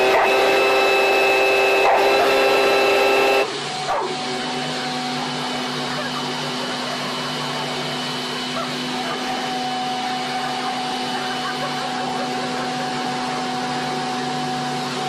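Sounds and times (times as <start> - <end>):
high steady tone: 0.0 - 3.5
leaf blower running: 0.0 - 15.0.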